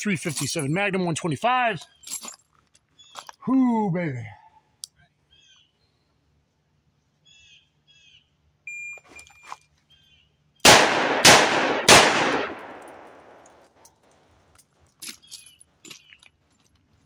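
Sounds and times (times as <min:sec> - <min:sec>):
birds chirping: 0:00.0 - 0:02.2, 0:02.8 - 0:04.4, 0:05.0 - 0:06.3
electronic timer beep: 0:08.7 - 0:09.4
revolver gunshots: 0:10.6 - 0:13.6.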